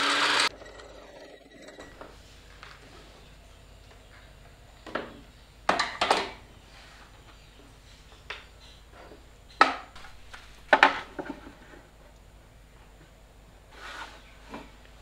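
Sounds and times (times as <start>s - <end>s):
wooden blocks knocking on metal table: 10.7s - 11.4s.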